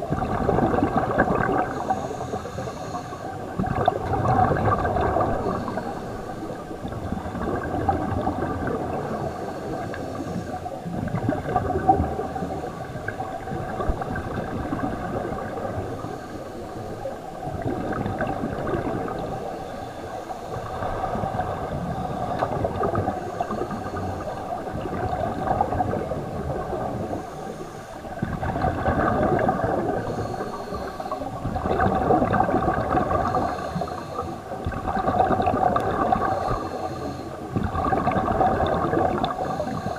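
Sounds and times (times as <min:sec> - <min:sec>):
bubbles gurgling: 0:00.0 - 0:39.9
divers breathing through regulators: 0:01.7 - 0:03.4, 0:05.4 - 0:06.6, 0:30.0 - 0:31.5, 0:33.2 - 0:34.5, 0:36.2 - 0:37.4, 0:39.3 - 0:39.9.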